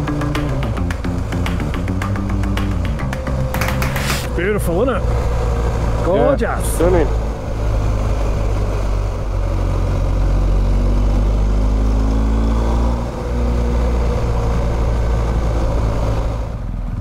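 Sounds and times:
motorcycle engine running: 0.0 - 12.1.

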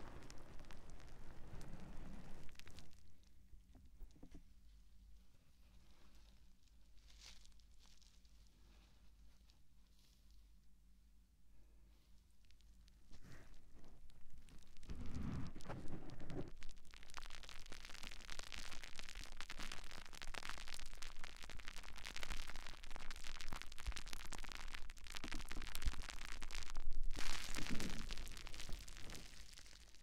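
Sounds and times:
sponge rubbed against microphone: 14.9 - 16.5.

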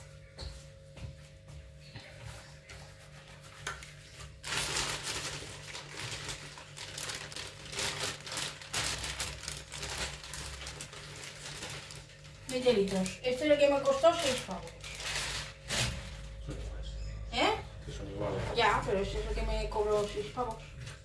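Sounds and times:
plastic bag crinkling: 3.8 - 16.4, 19.6 - 21.0.

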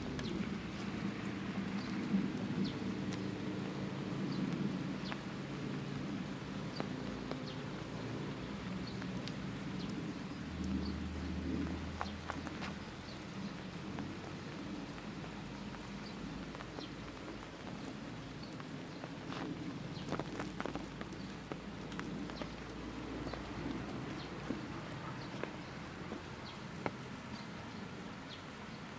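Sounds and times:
light ticks: 6.6 - 27.5.

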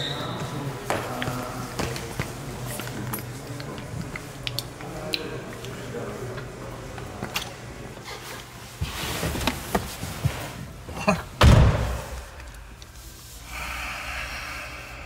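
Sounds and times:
car door slam: 11.4 - 12.1.

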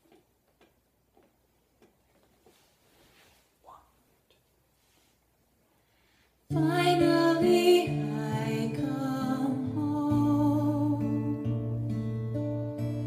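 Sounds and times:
woman singing: 6.5 - 12.1
acoustic guitar: 6.5 - 13.0.

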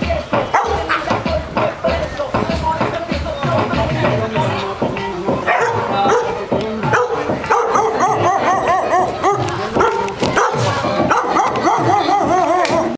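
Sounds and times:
dogs barking: 0.5 - 1.3, 5.4 - 12.9.

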